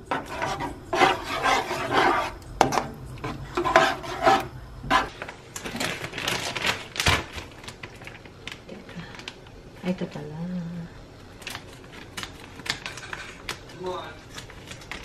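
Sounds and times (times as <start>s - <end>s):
spatula scraping sauce in a pan: 0.0s - 5.1s.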